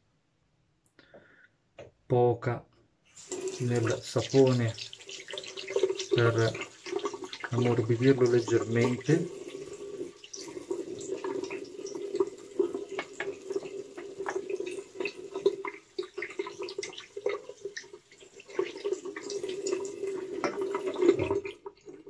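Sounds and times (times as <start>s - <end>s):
water dripping: 3.1s - 22.0s
tap running into a sink: 3.3s - 18.0s, 18.6s - 21.5s.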